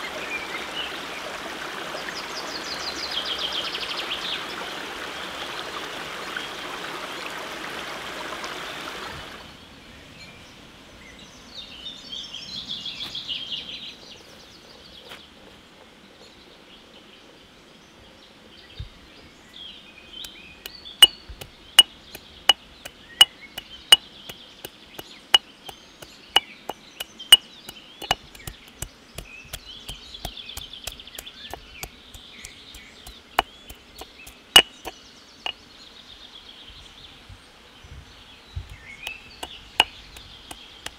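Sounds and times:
running water: 0.0 - 9.5, 28.0 - 34.9
birds chirping: 16.1 - 40.9
chopping strikes on wood: 33.1 - 35.0.

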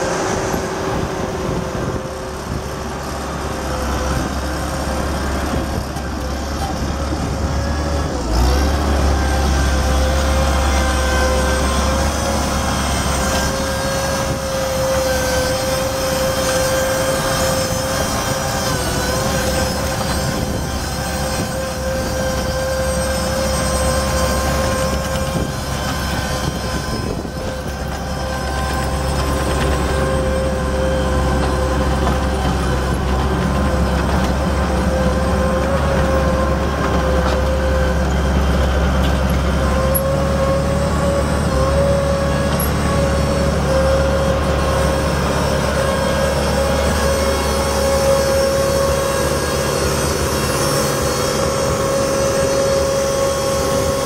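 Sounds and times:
diesel engine running: 0.0 - 54.0
steady whine: 0.0 - 54.0.

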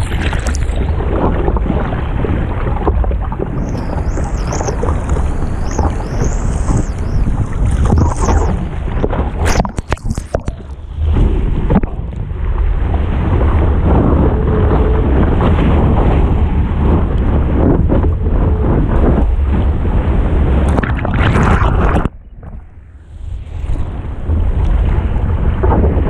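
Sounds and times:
ocean surf: 0.0 - 26.0
wind buffeting microphone: 0.0 - 26.0
crackling clicks: 2.8 - 10.8.

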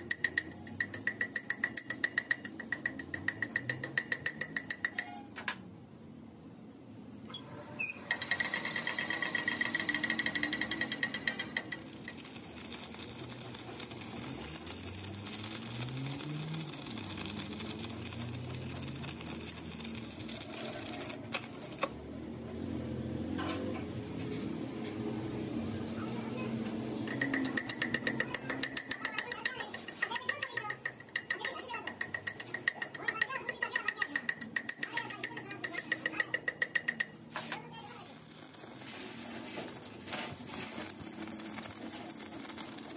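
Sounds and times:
fast metallic clatter: 8.3 - 21.9, 27.0 - 42.9
arc welding crackling hiss: 11.7 - 21.9, 37.8 - 42.9.

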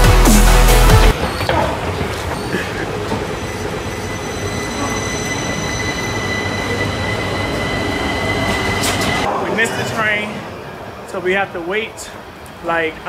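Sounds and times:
subway train wheels rumbling: 1.1 - 13.0
thin high whines: 3.3 - 10.8.

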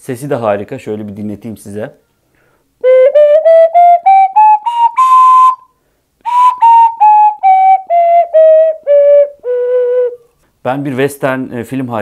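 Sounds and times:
ocarina playing a scale: 2.8 - 10.3.

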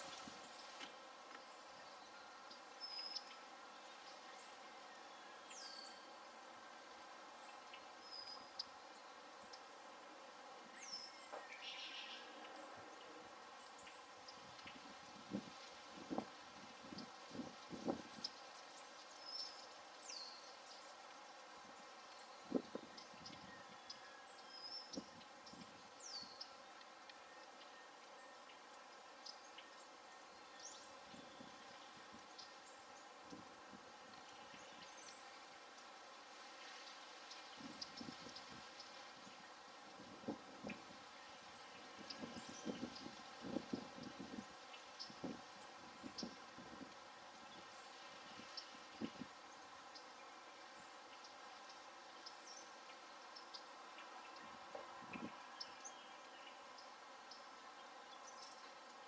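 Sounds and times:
insect hum: 0.0 - 59.0
small birds chirping: 0.0 - 59.0.

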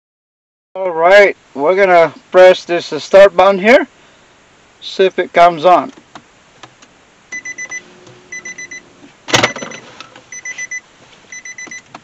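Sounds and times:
car warning chime beeping: 7.3 - 12.0.

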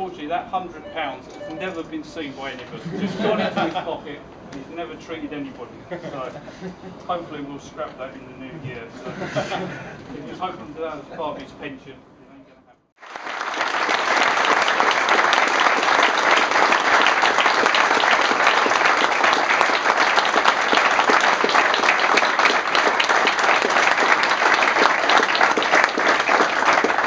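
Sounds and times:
crowd applauding: 13.0 - 27.0.

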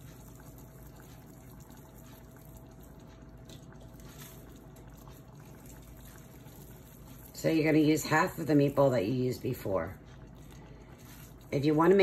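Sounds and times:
squishing of raw meat by hand: 0.0 - 7.4, 9.9 - 11.6
kitchen background hum: 0.0 - 12.0.

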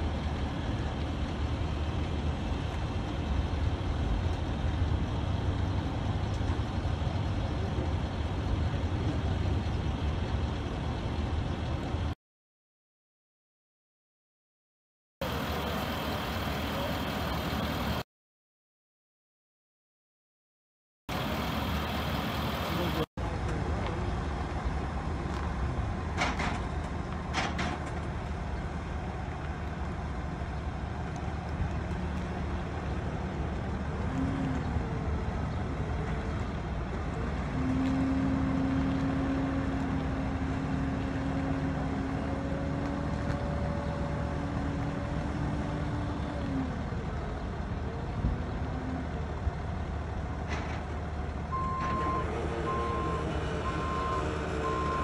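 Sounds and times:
heavy truck engines running: 0.0 - 12.2, 15.2 - 18.0, 21.1 - 55.0
truck reversing alarm beeping: 15.2 - 18.0, 21.1 - 23.1, 51.5 - 55.0.

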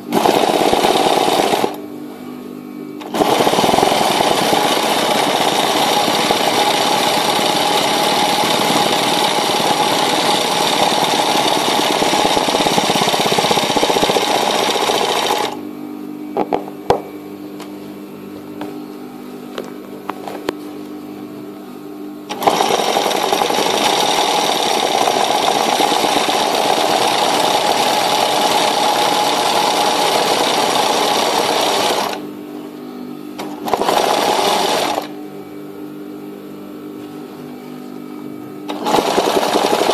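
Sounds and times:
sewing machine stitching: 0.1 - 1.8, 3.0 - 15.6, 22.3 - 32.2, 33.4 - 35.1, 38.7 - 39.9.

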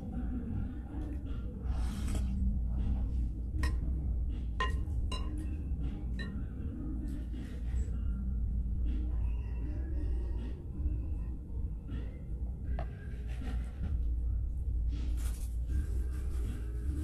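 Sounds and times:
spoon clinking on ceramic bowl: 4.6 - 5.5, 6.2 - 6.4.

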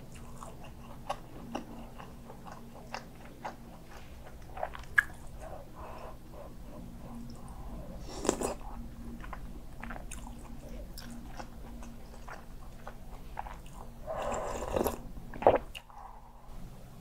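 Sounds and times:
mouth clicks and chewing: 0.1 - 5.6.

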